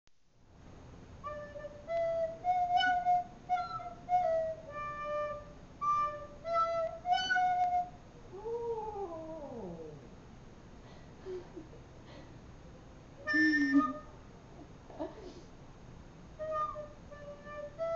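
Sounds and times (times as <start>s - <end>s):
recorder notes: 1.2s - 8.0s, 13.2s - 14.2s, 16.4s - 17.9s
dog howling: 8.3s - 10.1s.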